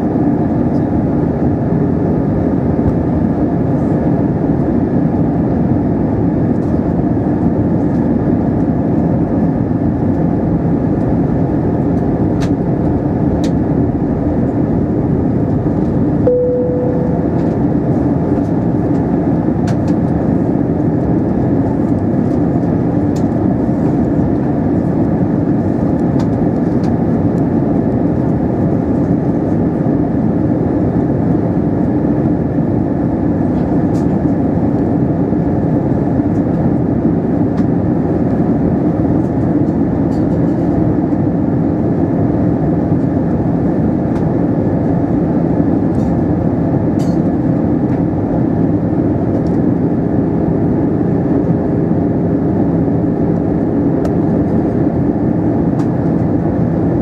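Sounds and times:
airplane cabin engine hum: 0:00.0 - 0:57.0
short single tone: 0:16.2 - 0:17.7.

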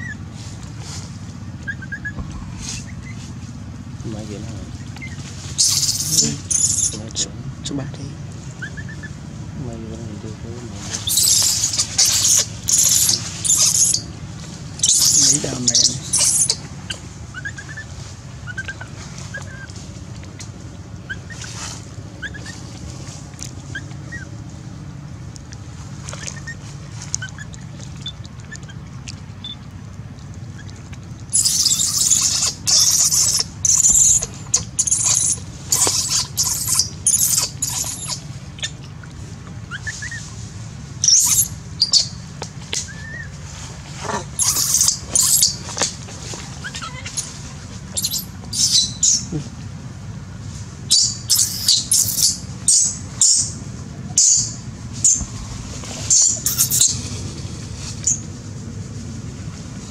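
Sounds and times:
shrill monkey screams: 0:05.6 - 0:07.0, 0:10.9 - 0:14.1, 0:14.8 - 0:16.6, 0:31.3 - 0:38.3, 0:41.0 - 0:42.1, 0:44.3 - 0:45.6, 0:46.6 - 0:47.4, 0:48.0 - 0:49.3, 0:50.9 - 0:53.4, 0:56.1 - 0:57.0
baby monkey crying: 0:05.6 - 0:07.2, 0:10.9 - 0:14.1, 0:14.7 - 0:16.6, 0:31.3 - 0:38.7, 0:41.0 - 0:42.1, 0:44.1 - 0:45.6, 0:46.6 - 0:49.3, 0:50.9 - 0:54.5, 0:56.1 - 0:57.1.

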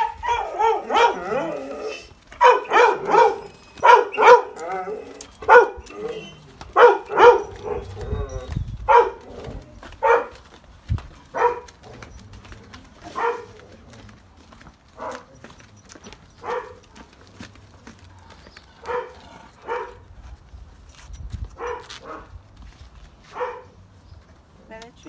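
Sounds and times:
dog barking: 0:00.0 - 0:01.4, 0:02.4 - 0:04.7, 0:05.4 - 0:05.9, 0:06.7 - 0:07.9, 0:08.9 - 0:09.2, 0:10.0 - 0:10.4, 0:11.3 - 0:11.7, 0:13.1 - 0:13.5, 0:15.0 - 0:15.3, 0:16.4 - 0:16.8, 0:18.9 - 0:20.0, 0:21.6 - 0:22.3, 0:23.3 - 0:23.7.

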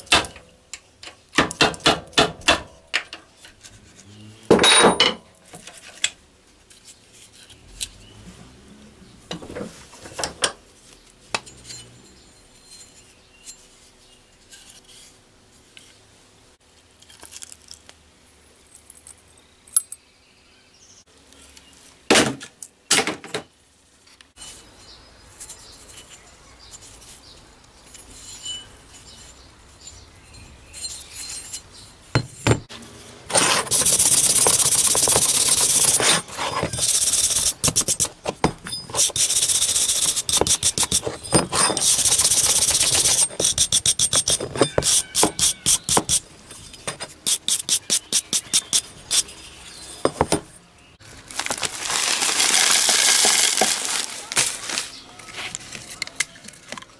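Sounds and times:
abrasive rubbing on a hatchet: 0:33.3 - 0:50.2.

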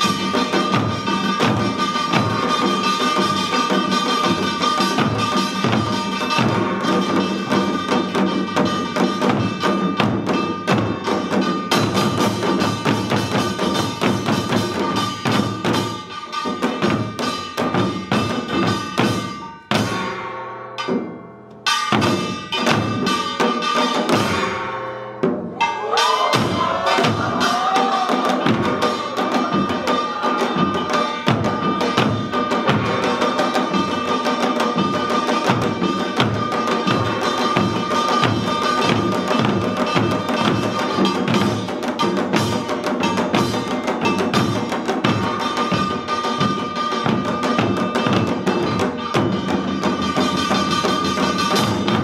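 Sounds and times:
hourglass drums playing fast rhythm: 0:00.0 - 0:52.0.

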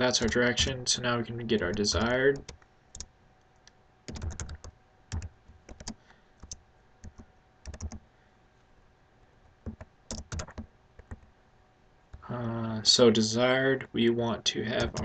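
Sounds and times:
computer keyboard typing: 0:00.2 - 0:00.4, 0:01.6 - 0:03.1, 0:04.1 - 0:08.0, 0:09.6 - 0:11.3, 0:14.8 - 0:15.0.

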